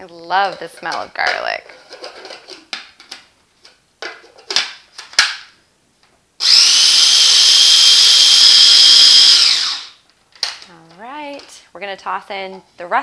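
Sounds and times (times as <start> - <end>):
food processor motor whining: 6.4 - 10.0.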